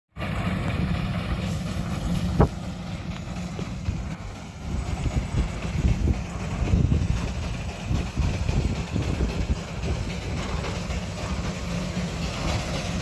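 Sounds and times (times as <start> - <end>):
steam traction engine running: 0.2 - 13.0
wind rumbling on microphone: 0.2 - 13.0.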